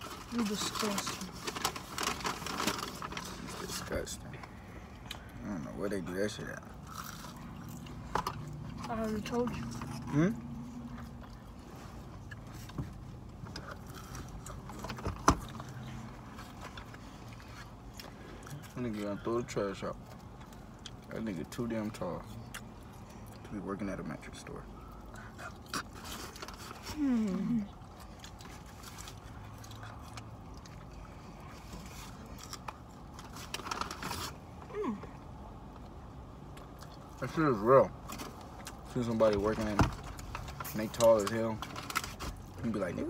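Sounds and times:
chewing: 0:06.8 - 0:08.9, 0:09.6 - 0:19.1, 0:22.2 - 0:23.5, 0:24.8 - 0:34.2.

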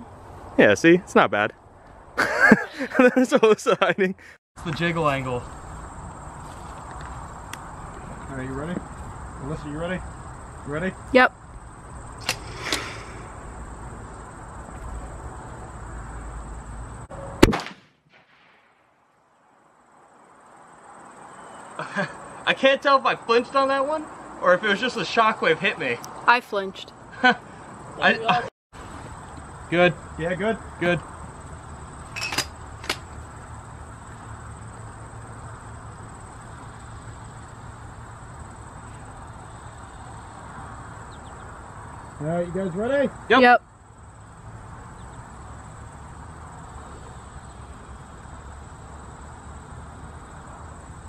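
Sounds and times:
rifle shot: 0:17.4 - 0:18.9.

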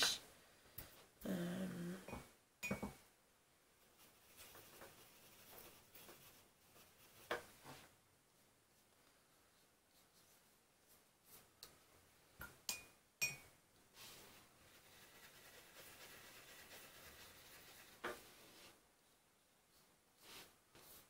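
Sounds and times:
brush scrubbing paint: 0:03.8 - 0:07.8, 0:14.0 - 0:18.8.

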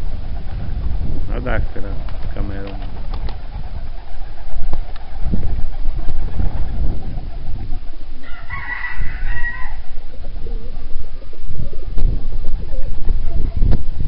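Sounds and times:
rooster crowing: 0:08.2 - 0:10.0.

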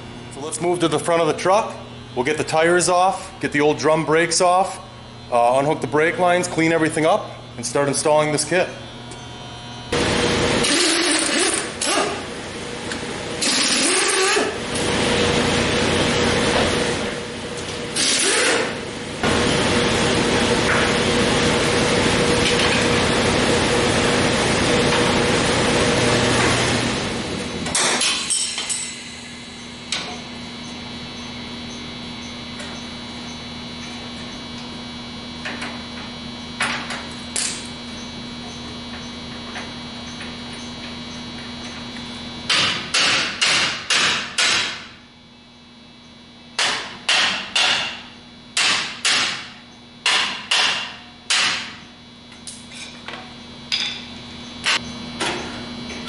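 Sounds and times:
hammer striking metal: 0:42.5 - 0:44.8, 0:46.6 - 0:48.0, 0:50.0 - 0:51.6.

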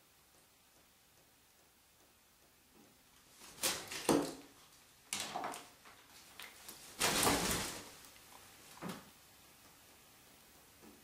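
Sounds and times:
parrot flapping and shaking feathers: 0:03.3 - 0:04.5, 0:05.2 - 0:09.1.

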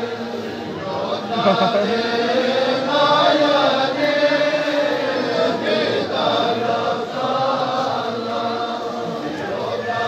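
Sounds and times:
many voices chanting a lament: 0:00.0 - 0:10.0.

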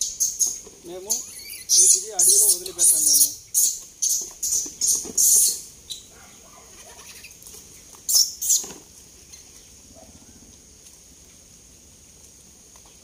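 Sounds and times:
monkeys hissing: 0:01.1 - 0:06.1.

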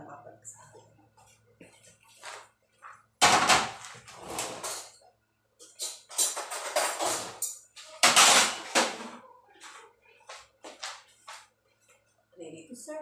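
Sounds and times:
dishes and tray clattering: 0:05.6 - 0:09.2.

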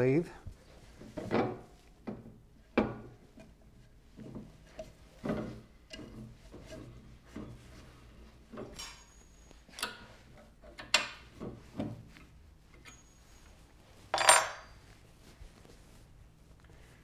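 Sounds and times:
metal clatter: 0:14.1 - 0:14.8
metal faceplate knocking and clinking: 0:14.1 - 0:14.8.

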